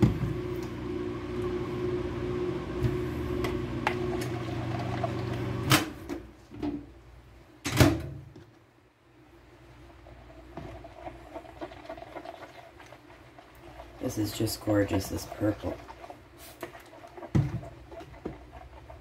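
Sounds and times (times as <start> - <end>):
microwave oven humming: 0.0 - 6.1.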